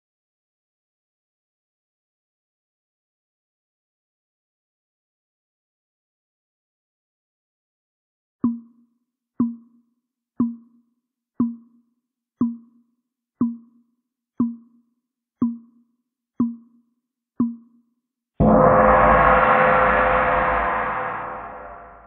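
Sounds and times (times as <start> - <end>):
timer ticking: 8.4 - 9.8, 10.4 - 10.8, 11.4 - 11.8, 12.4 - 17.8
loud ringing alarm: 18.4 - 22.0.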